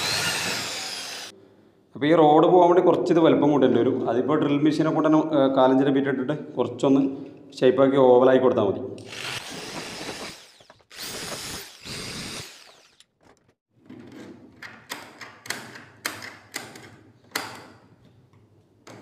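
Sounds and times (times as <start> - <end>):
electric drill running: 0.0 - 1.3, 9.0 - 13.1.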